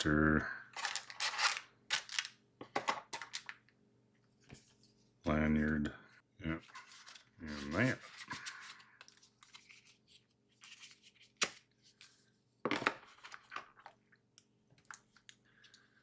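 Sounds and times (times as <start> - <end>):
paper and cardboard rustling: 6.6 - 13.8.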